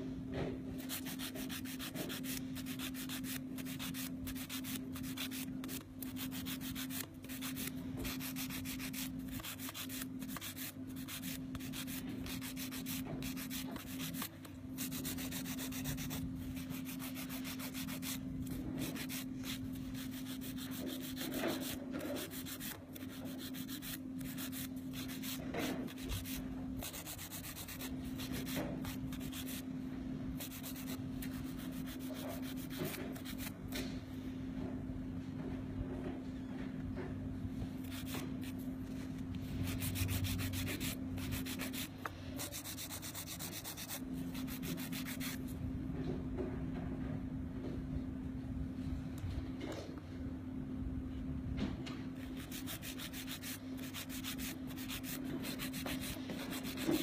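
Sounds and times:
nail file rasping: 0.8 - 29.6, 52.4 - 57.0.

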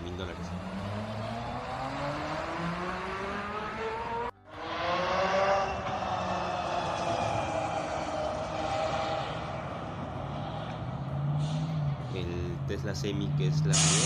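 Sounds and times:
tyre and road noise: 0.0 - 14.0
electric motor whine rising: 0.7 - 9.8.

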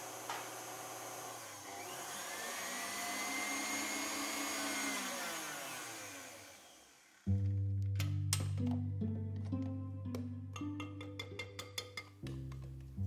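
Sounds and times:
stand mixer motor hum: 0.0 - 7.2.

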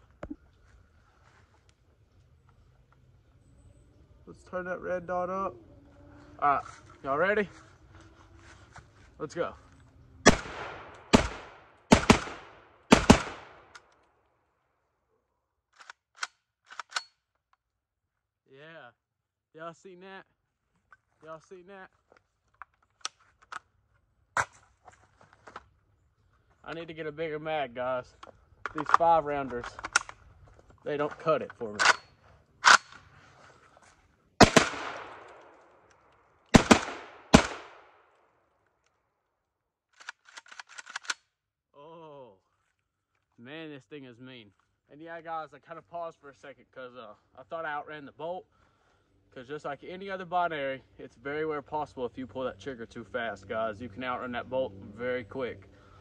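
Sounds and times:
shotgun shots: 10.2 - 13.7, 34.4 - 35.5, 36.5 - 37.9.

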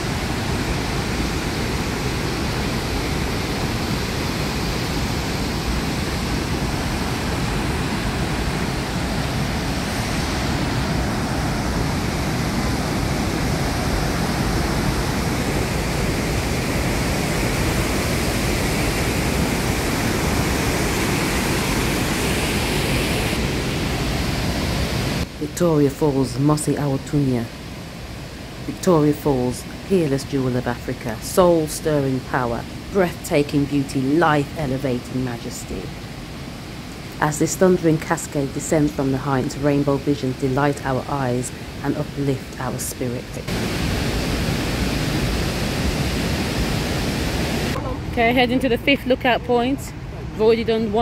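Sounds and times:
waterfall rushing: 0.0 - 25.3, 43.5 - 48.1.

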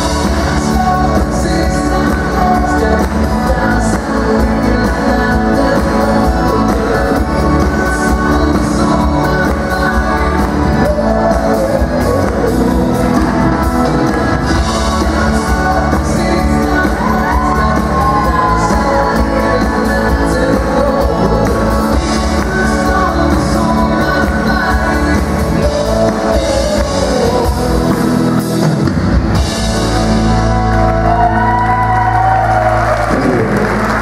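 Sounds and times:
dance music with singer: 0.0 - 28.6.

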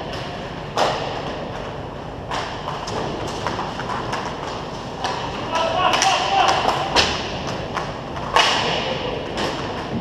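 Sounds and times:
hockey stick cracking puck: 2.3 - 10.0.

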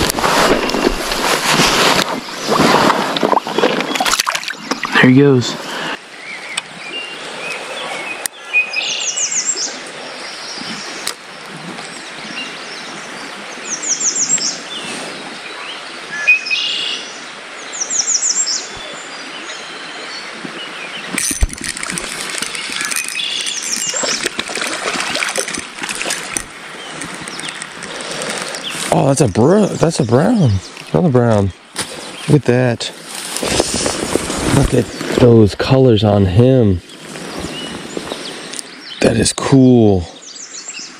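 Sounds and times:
songbirds singing: 3.6 - 40.9.

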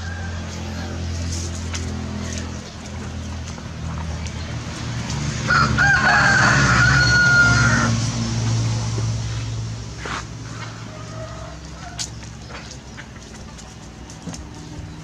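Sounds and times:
rooster crowing: 0.0 - 1.1, 5.5 - 8.0, 10.8 - 12.1.

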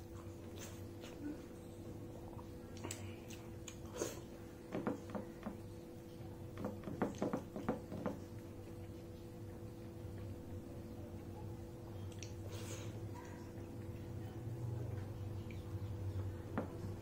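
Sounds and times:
steady low hum: 0.0 - 17.0
wet chewing and lip smacks: 2.3 - 4.0, 12.0 - 12.5.

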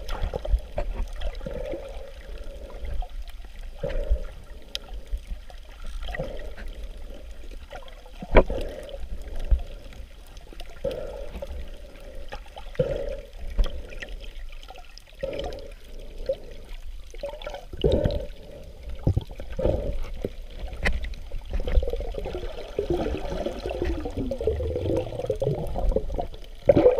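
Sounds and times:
seawater sloshing and gurgling: 0.0 - 26.9
underwater bubbling: 0.0 - 26.9
muffled water surge: 15.2 - 26.9.

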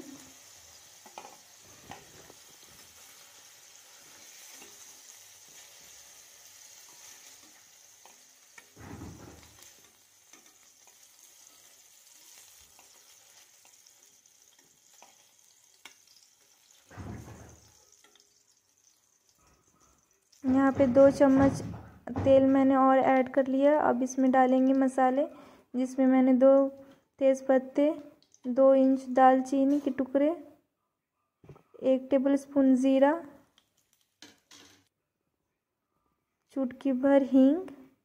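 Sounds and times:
hot oil sizzling: 0.0 - 21.4.

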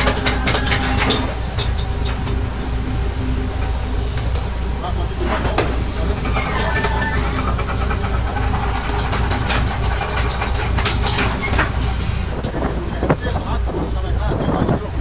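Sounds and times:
boat engine droning: 0.0 - 15.0
churning wake water: 0.0 - 15.0.

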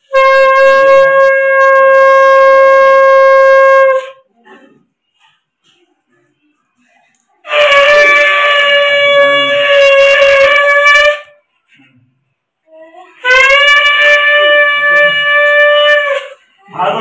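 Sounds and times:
conch shell blasts: 0.0 - 4.2, 7.5 - 11.4, 13.2 - 16.4.

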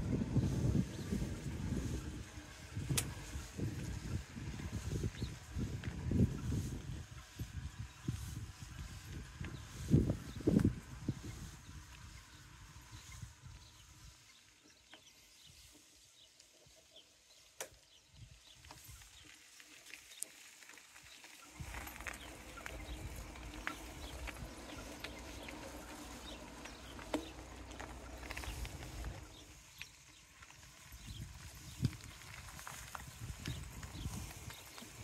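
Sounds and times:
wind rumble on microphone: 0.0 - 14.2, 21.6 - 35.0
footsteps on paved path: 0.0 - 15.9, 18.4 - 35.0.

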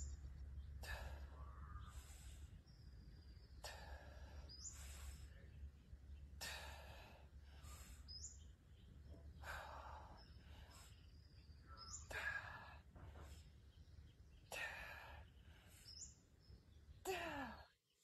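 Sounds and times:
person breathing hard: 0.8 - 2.8, 3.5 - 5.4, 9.3 - 11.3.

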